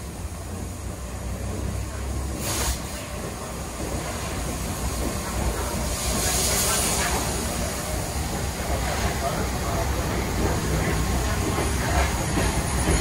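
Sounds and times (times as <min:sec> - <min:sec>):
steam hissing: 0:00.0 - 0:13.0
steam locomotive rumbling: 0:00.0 - 0:13.0.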